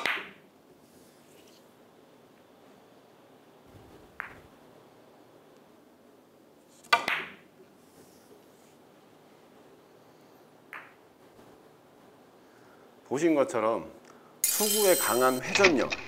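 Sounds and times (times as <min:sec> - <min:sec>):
billiard balls clacking: 0:04.1 - 0:04.5.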